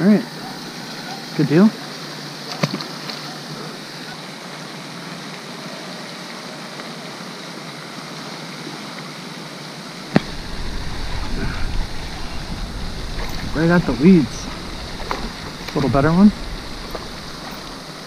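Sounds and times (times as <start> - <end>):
spray fountain splashing: 10.0 - 18.0.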